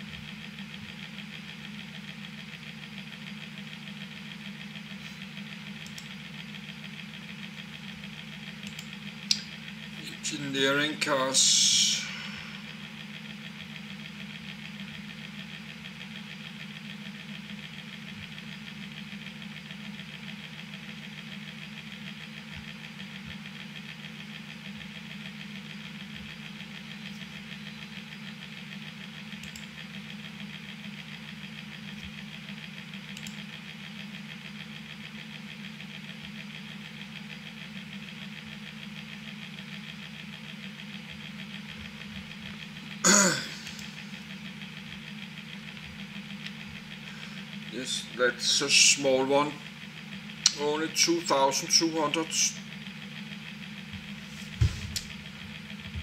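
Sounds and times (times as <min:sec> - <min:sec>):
background hum with hiss: 0:00.0 - 0:56.0
faint clicks: 0:08.6 - 0:09.5, 0:29.4 - 0:29.7, 0:33.1 - 0:33.4.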